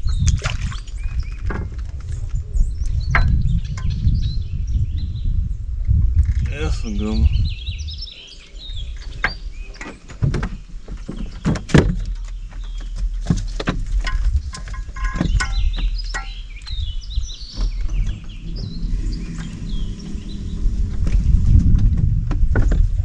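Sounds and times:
birds chirping: 0:06.5 - 0:23.0
low rumble: 0:15.4 - 0:23.0.

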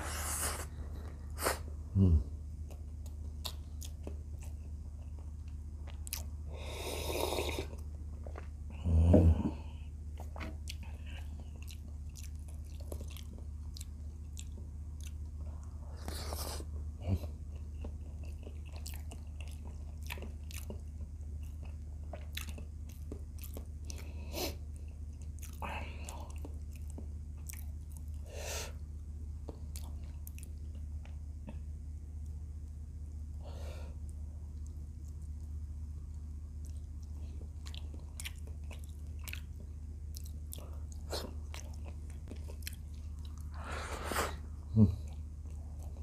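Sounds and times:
steady low hum: 0:00.0 - 0:46.0
chewing with wet mouth clicks: 0:02.6 - 0:06.3, 0:10.1 - 0:15.4, 0:17.2 - 0:24.1, 0:24.7 - 0:28.2, 0:29.4 - 0:31.7, 0:34.0 - 0:43.5.

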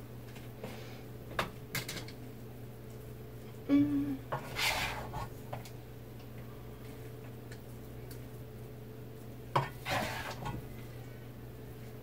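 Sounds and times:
steady low hum: 0:00.0 - 0:12.0
spoon scraping stuffing: 0:04.4 - 0:05.4, 0:09.6 - 0:10.6.

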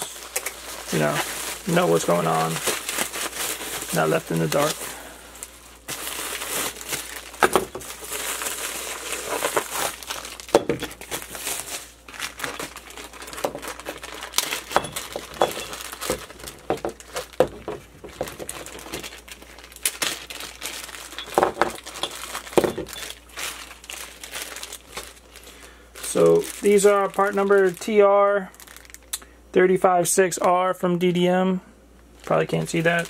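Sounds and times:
plastic packaging crinkling: 0:00.0 - 0:29.2, 0:32.1 - 0:33.0.

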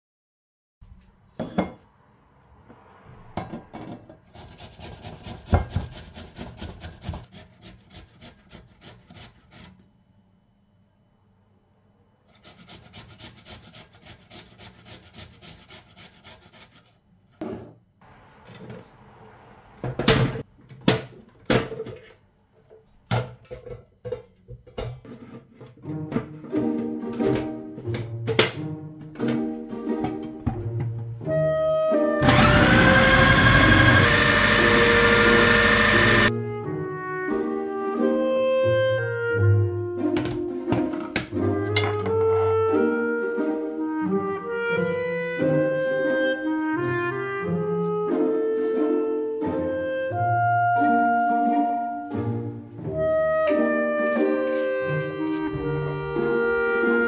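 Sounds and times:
kitchen things clattering on counter: 0:01.4 - 0:01.8, 0:23.1 - 0:26.4, 0:40.3 - 0:42.3
vegetables grated on metal grater: 0:04.3 - 0:09.8.

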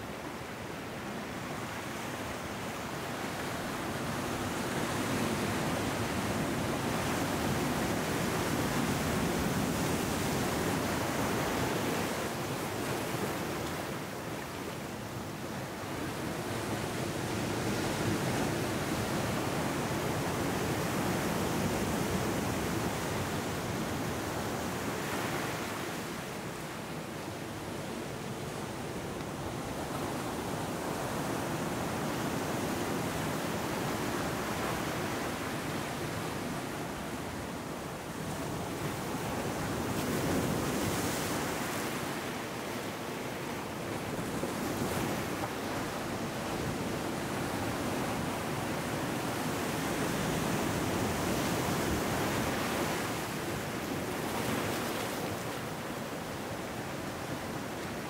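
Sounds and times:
ocean surf breaking on rocks: 0:28.6 - 0:58.0.

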